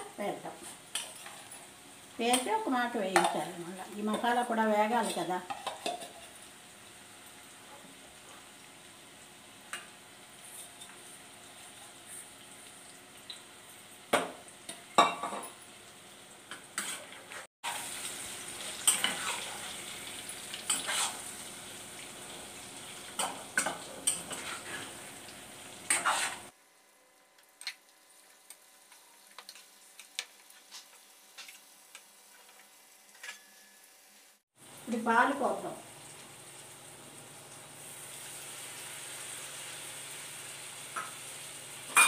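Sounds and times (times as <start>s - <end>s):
food sizzling in oil: 0.0s - 42.0s
spatula scraping and tapping pan: 5.0s - 6.4s, 16.5s - 17.4s, 18.8s - 19.6s, 20.5s - 21.2s, 23.2s - 24.9s, 25.9s - 26.5s.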